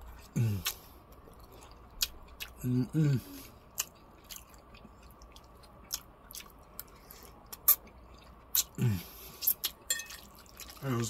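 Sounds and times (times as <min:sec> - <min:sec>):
wet chewing: 0:00.1 - 0:02.6, 0:03.4 - 0:11.0
person humming: 0:02.6 - 0:03.4.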